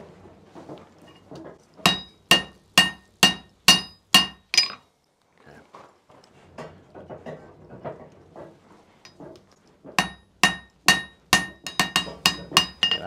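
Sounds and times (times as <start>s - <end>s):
hammer blows on hot steel: 10.0s - 13.0s.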